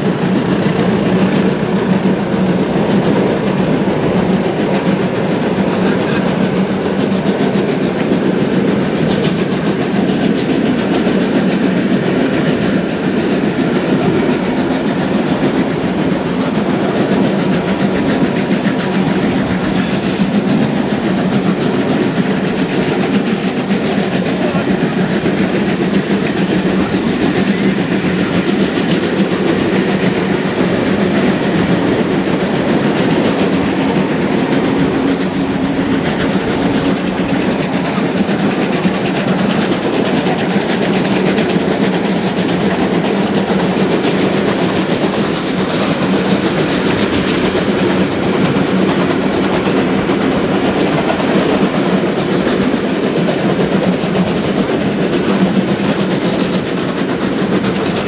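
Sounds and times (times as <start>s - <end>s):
steady hum: 0.0s - 6.7s
train wheels rushing on rails: 0.0s - 58.0s.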